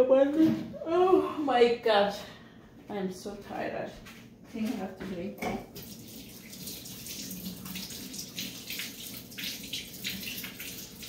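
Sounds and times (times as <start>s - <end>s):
tap water splashing into sink: 5.4s - 11.0s.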